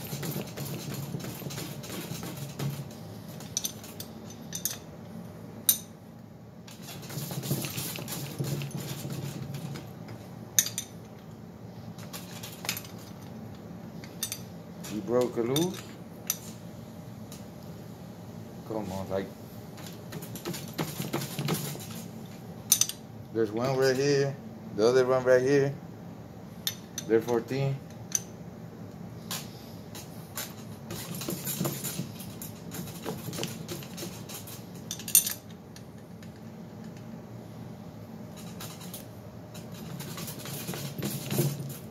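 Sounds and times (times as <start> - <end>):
wrench clinking on metal: 3.5 - 4.9, 14.1 - 16.5, 22.7 - 23.0, 34.4 - 35.5.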